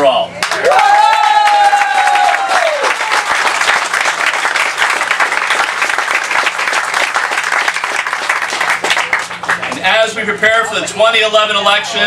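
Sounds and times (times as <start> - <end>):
crowd applauding: 0.4 - 9.9.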